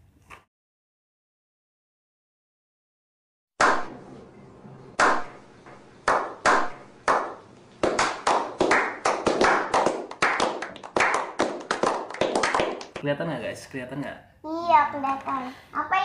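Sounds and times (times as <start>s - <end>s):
group slow clapping: 3.6s - 4.0s, 5.0s - 13.1s.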